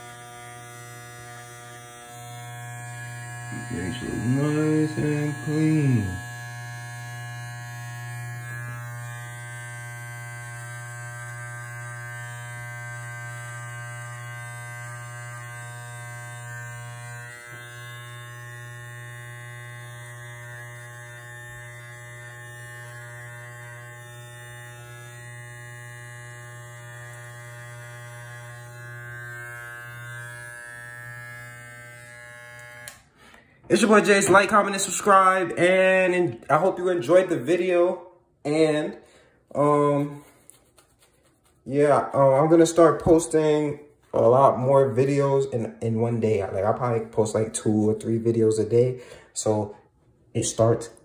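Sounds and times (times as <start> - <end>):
electric hair trimmer buzzing: 0.0 - 36.0.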